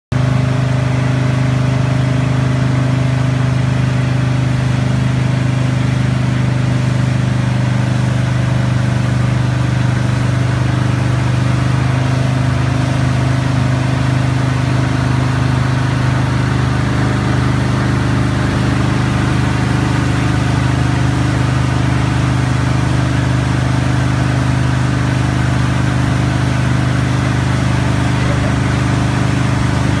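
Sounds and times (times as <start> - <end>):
boat engine humming: 0.1 - 30.0
water rushing in wake: 0.2 - 30.0.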